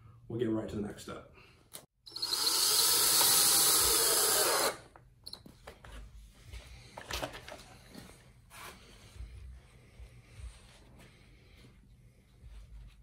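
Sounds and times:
cordless drill driving a screw: 0:02.1 - 0:04.9.

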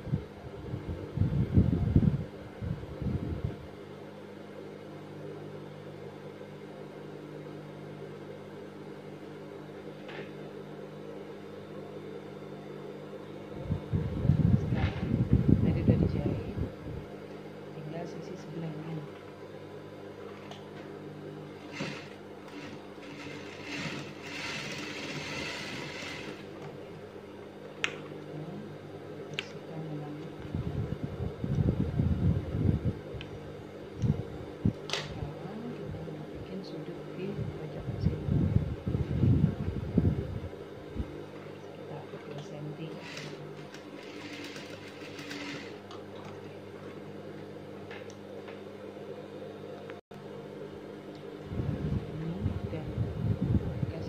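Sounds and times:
sewing machine stitching: 0:21.6 - 0:26.5, 0:42.9 - 0:45.8.

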